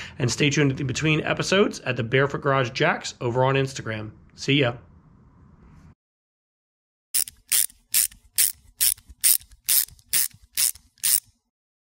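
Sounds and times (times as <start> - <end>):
ratchet wrench clicking: 7.2 - 11.4.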